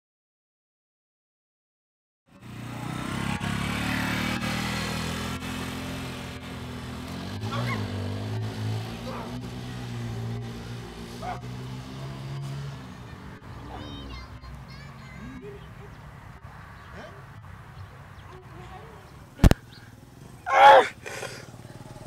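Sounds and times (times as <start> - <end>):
motorcycle engine passing: 2.3 - 22.0.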